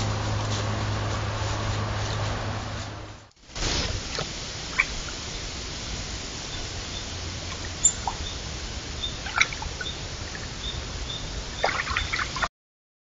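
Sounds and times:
microphone hiss: 0:00.0 - 0:12.5
faint high chirp: 0:07.8 - 0:08.4
splashes and steps in water: 0:09.2 - 0:10.5, 0:11.6 - 0:12.5.

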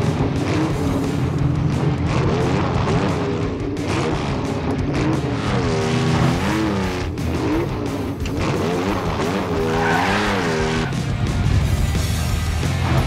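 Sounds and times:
background music: 0:00.0 - 0:13.0
truck engine revving: 0:00.0 - 0:13.0.

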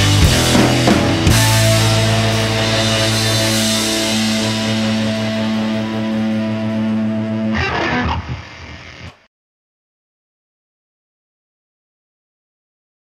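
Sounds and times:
rock music chord: 0:00.0 - 0:09.2.

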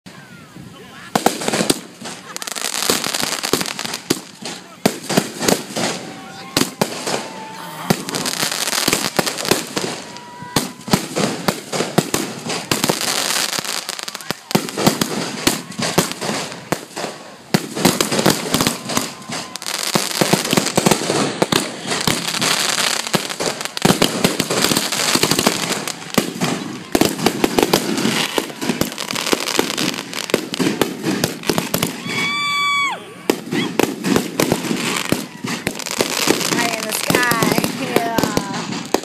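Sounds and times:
fireworks bangs and crackling: 0:00.1 - 0:39.0
high firework whistle: 0:18.1 - 0:22.7, 0:31.2 - 0:38.4.

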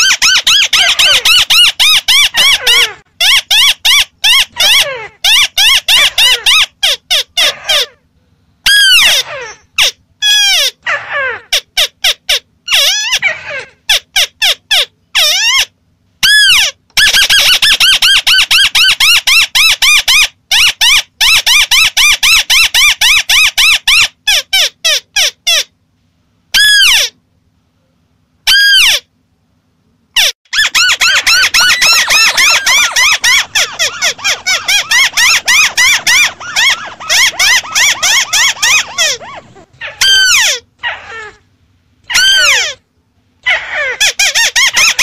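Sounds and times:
bird chattering calls: 0:30.2 - 0:41.4.

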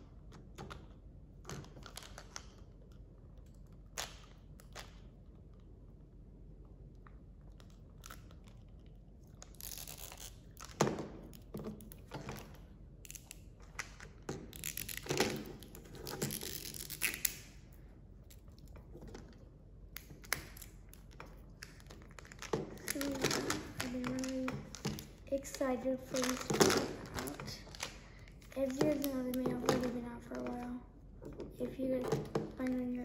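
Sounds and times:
plastic wrapping crinkling and tearing: 0:09.4 - 0:10.8, 0:14.5 - 0:17.5, 0:20.0 - 0:30.8.

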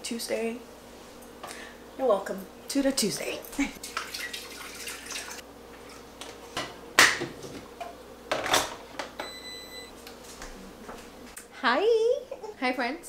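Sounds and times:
water pouring: 0:03.8 - 0:05.4.

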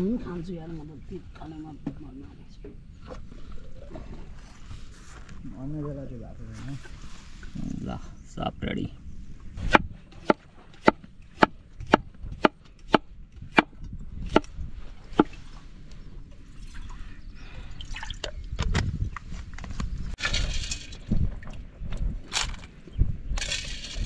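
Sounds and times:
rustling scraping noise: 0:03.0 - 0:05.5, 0:06.4 - 0:07.8.

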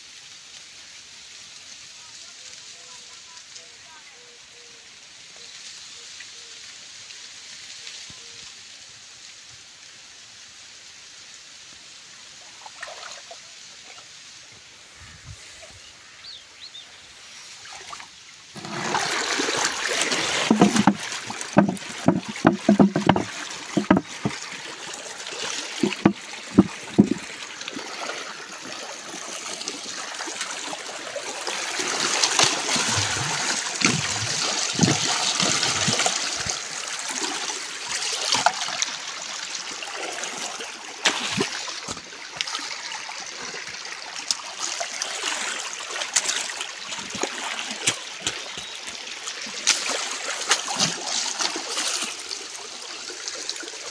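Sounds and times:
water running through a channel: 0:00.0 - 0:53.9
irregular thumps: 0:20.1 - 0:24.6, 0:25.7 - 0:27.4.

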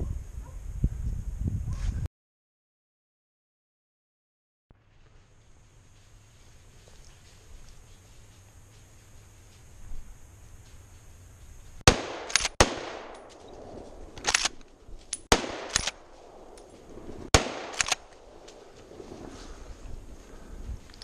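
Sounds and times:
rifle shots: 0:11.8 - 0:19.3
rifle bolt clacking: 0:12.0 - 0:13.4, 0:14.2 - 0:16.7, 0:17.4 - 0:18.2.

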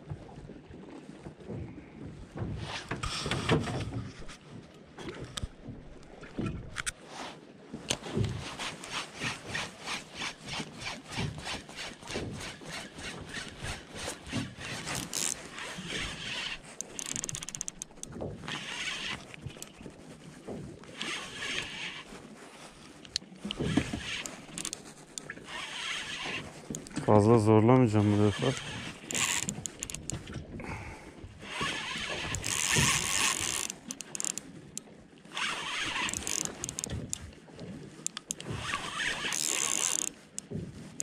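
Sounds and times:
spinning reel ticking: 0:14.7 - 0:19.7, 0:28.3 - 0:30.2, 0:31.5 - 0:34.4, 0:35.4 - 0:36.9, 0:38.2 - 0:40.1.

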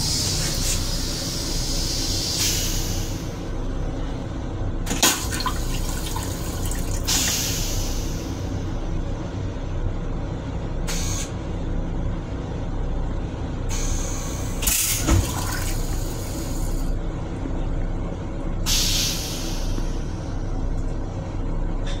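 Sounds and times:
steady low rumble: 0:00.0 - 0:14.7, 0:15.3 - 0:21.9
toilet flushing water hiss: 0:04.9 - 0:08.4, 0:14.8 - 0:16.9.

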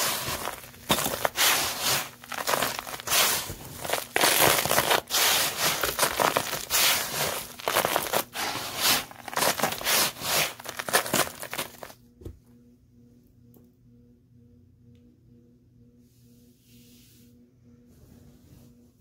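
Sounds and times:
dirt and glitter crunching: 0:00.0 - 0:12.0
faint steady tones: 0:12.0 - 0:19.0.

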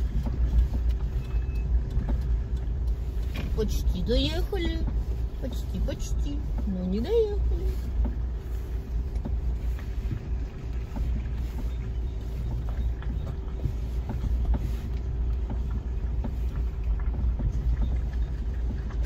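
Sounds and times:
light ticks and knocks: 0:00.0 - 0:05.4
engine and road rumble: 0:00.0 - 0:19.0.

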